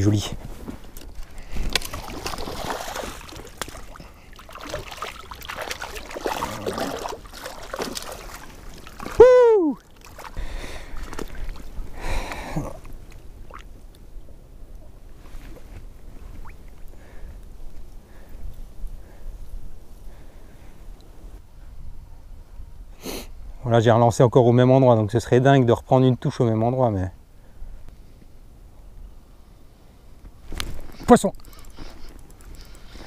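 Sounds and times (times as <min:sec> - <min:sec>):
fish splashing in water: 0:01.6 - 0:11.8.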